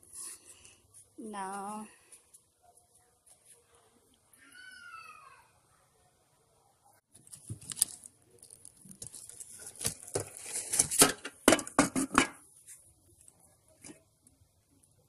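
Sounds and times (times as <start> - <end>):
plastic and cloth crinkling: 7.1 - 11.1.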